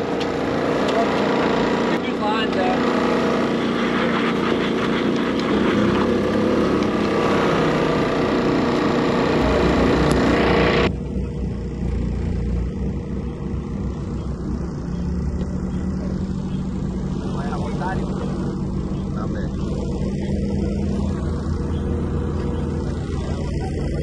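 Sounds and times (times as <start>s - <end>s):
engine running: 0.0s - 24.0s.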